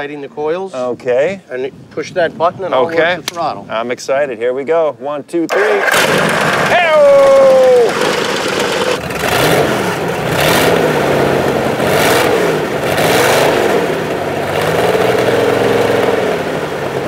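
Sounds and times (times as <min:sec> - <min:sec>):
boat engine revving: 0:05.5 - 0:17.0
exhaust spraying water: 0:05.6 - 0:17.0.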